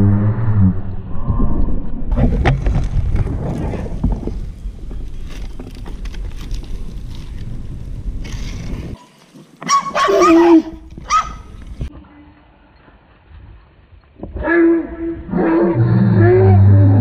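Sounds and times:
inline skate wheels on asphalt: 0:02.1 - 0:12.0.

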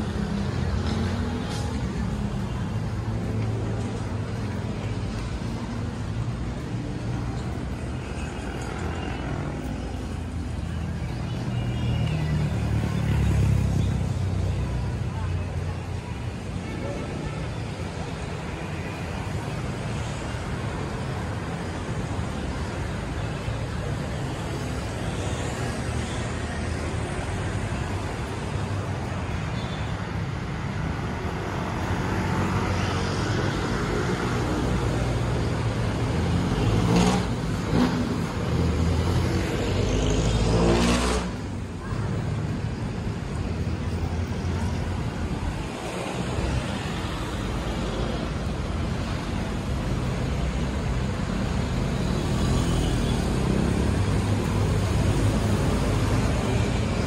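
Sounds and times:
busy city traffic: 0:00.0 - 0:57.0
motorcycles passing: 0:30.1 - 0:57.0.

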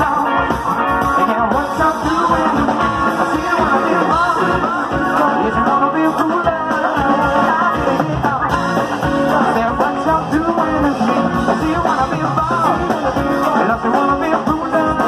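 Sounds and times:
drum beat: 0:00.0 - 0:15.0
electric guitars: 0:00.0 - 0:15.0
person singing: 0:00.0 - 0:15.0.

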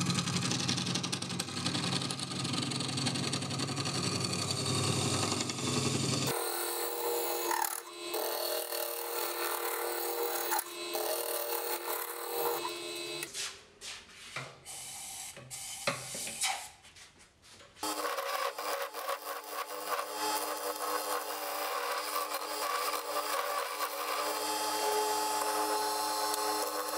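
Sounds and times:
lathe tool cutting wood: 0:03.5 - 0:13.3, 0:17.8 - 0:26.9.

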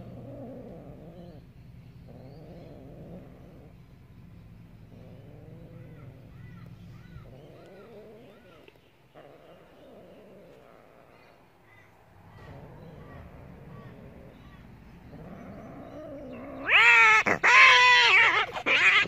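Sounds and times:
cats yowling: 0:04.9 - 0:11.2, 0:12.3 - 0:19.0.

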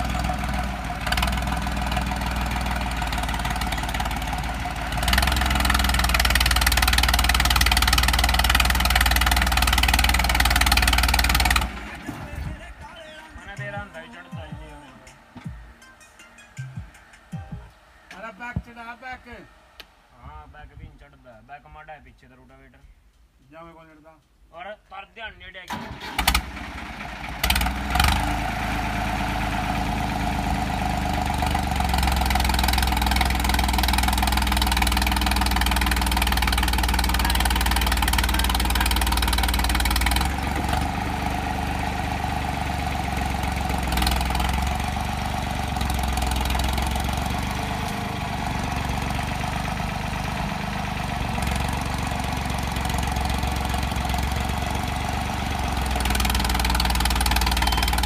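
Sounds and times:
tractor diesel engine under load: 0:00.0 - 0:15.7, 0:25.6 - 0:58.0.

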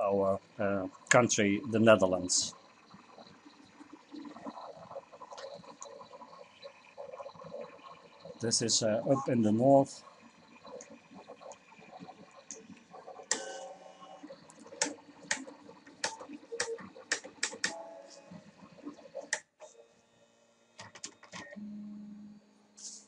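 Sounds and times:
steady low hum: 0:00.0 - 0:19.0, 0:21.6 - 0:23.0
faint motor whine: 0:00.0 - 0:23.0
stepper motor clicks: 0:10.2 - 0:17.8.

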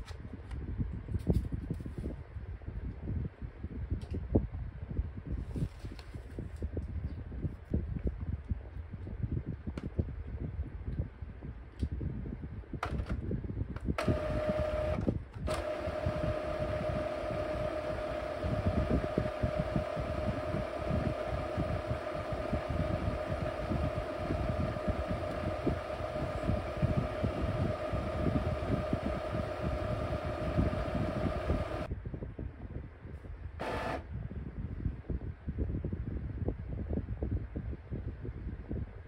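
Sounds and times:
constant whine: 0:14.0 - 0:31.9, 0:33.6 - 0:34.1
printer mechanical hum: 0:14.0 - 0:31.9, 0:33.6 - 0:34.0.

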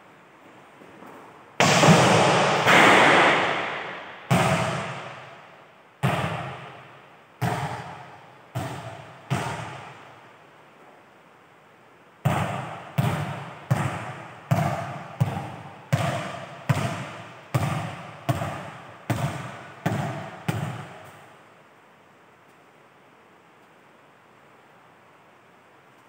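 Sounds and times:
volleyball bouncing on court floor: 0:01.6 - 0:05.4, 0:06.0 - 0:10.2, 0:12.2 - 0:21.2.

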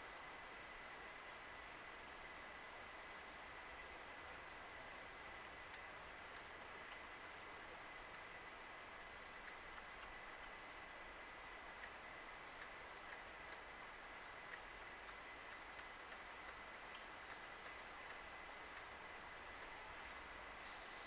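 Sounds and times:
steady low hiss: 0:00.0 - 0:21.0
faint high ticks: 0:01.6 - 0:02.3, 0:04.7 - 0:07.1, 0:09.0 - 0:10.6, 0:11.6 - 0:21.0
faint steady high tone: 0:18.8 - 0:21.0.

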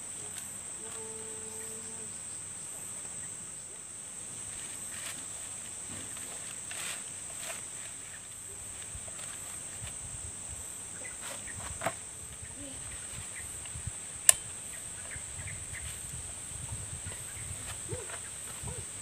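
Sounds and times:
high-pitched insect drone: 0:00.0 - 0:03.8
sharp click: 0:13.6 - 0:14.5.

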